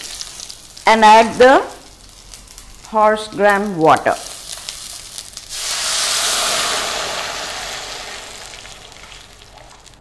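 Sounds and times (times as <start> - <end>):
oil sizzling in a pan: 0.0 - 10.0
loud hiss of steam: 5.5 - 8.5.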